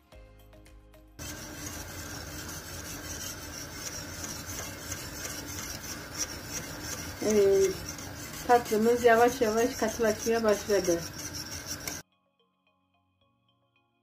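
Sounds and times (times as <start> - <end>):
whisk scraping metal pot: 1.2 - 12.0
person speaking: 5.0 - 12.0.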